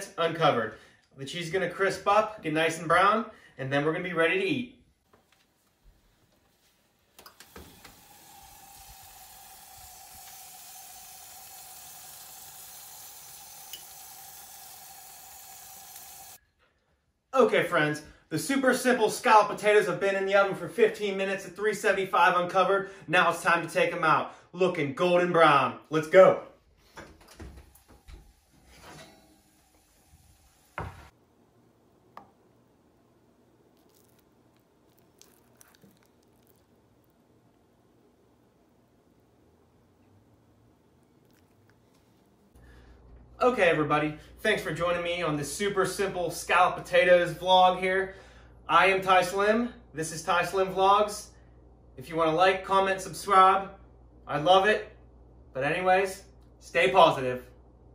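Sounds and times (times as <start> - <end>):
food sizzling in oven: 7.3 - 16.4, 27.6 - 31.2
spatula squishing into potatoes: 33.4 - 37.5.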